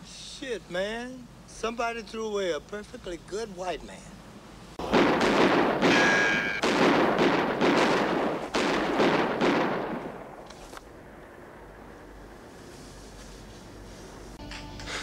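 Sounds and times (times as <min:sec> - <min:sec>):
rapid gunfire: 0:04.8 - 0:10.4.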